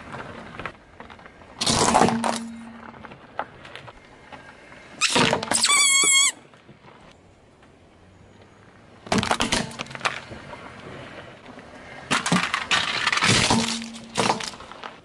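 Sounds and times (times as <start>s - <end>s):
car tyre crunching toys: 0.0s - 7.1s, 8.7s - 15.0s
squeeze toy squeal: 5.0s - 6.4s.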